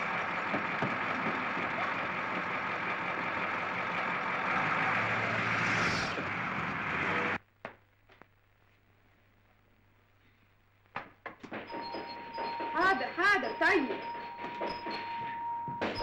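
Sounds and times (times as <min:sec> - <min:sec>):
bus engine running: 0:00.0 - 0:07.4.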